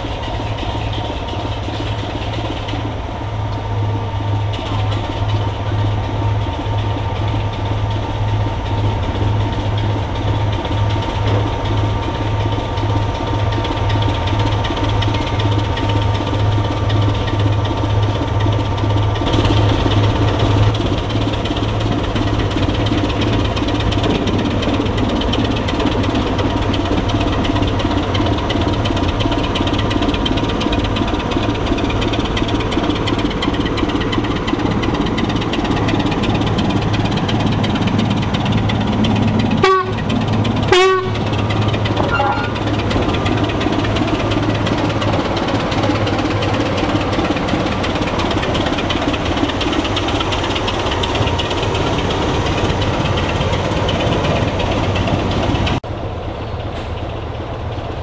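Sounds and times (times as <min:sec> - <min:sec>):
diesel locomotive engine throbbing: 0:00.0 - 0:58.0
locomotive horn blasts: 0:39.6 - 0:40.1, 0:40.7 - 0:41.3, 0:42.0 - 0:42.6.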